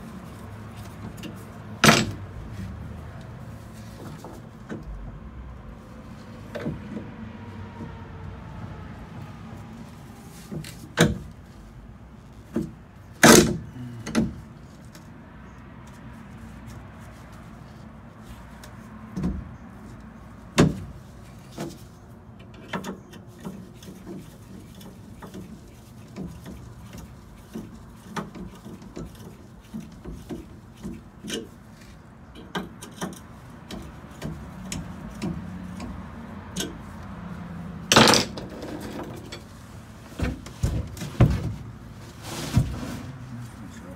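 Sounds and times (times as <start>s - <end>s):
metal knocks taps and clicks: 32.3s - 36.8s.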